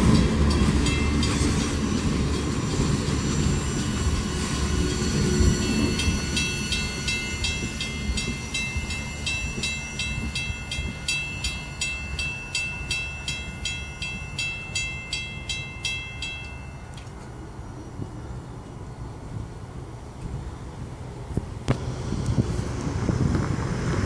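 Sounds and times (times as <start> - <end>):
railroad crossing bell ringing: 0.0 - 19.1
freight train rumble: 0.0 - 24.0.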